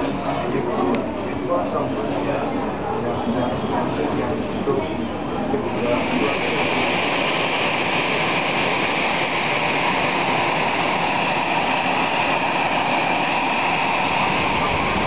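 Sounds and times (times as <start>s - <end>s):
jet aircraft rush with high whine: 3.7s - 15.0s.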